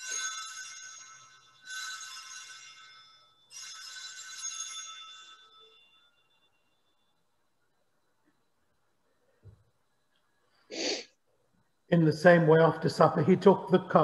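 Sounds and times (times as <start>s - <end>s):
high-pitched bell ringing: 0.0s - 7.3s.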